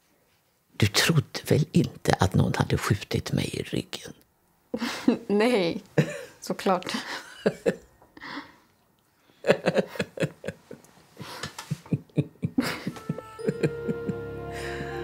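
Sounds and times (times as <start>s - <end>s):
women laughing: 7.0s - 7.9s, 9.4s - 10.8s, 11.6s - 15.0s.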